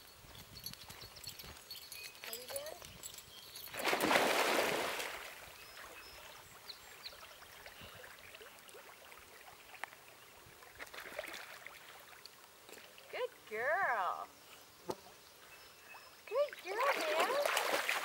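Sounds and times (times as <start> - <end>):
dog splashing into water: 3.7 - 5.4, 16.7 - 18.0
faint water lapping: 3.8 - 13.3, 15.8 - 18.0.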